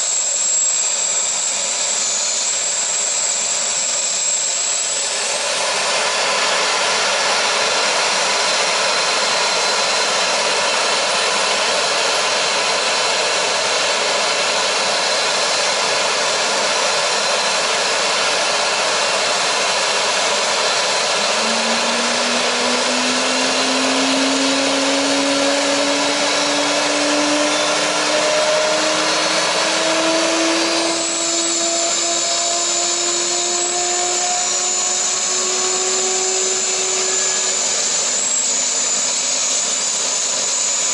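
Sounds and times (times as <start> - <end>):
engine whine rising in pitch: 0.0 - 40.9
jet engine rushing: 0.0 - 40.9
high whistle: 20.4 - 38.5.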